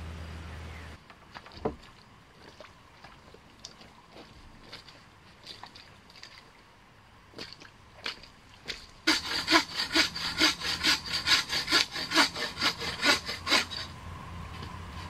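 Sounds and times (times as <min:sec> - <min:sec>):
hand saw cutting wood: 0:09.1 - 0:13.9.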